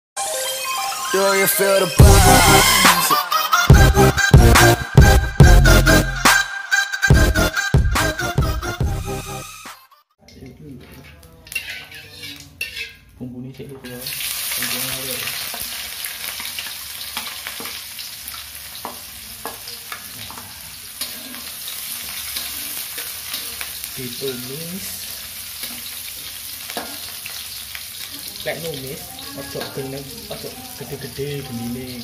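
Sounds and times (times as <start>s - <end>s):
metal spatula scraping pan: 10.8s - 13.1s
food sizzling in hot oil: 11.4s - 13.2s, 13.8s - 32.0s.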